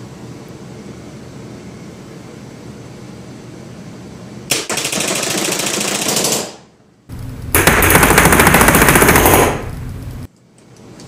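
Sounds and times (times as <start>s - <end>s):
paintball marker firing full auto: 7.6s - 9.7s.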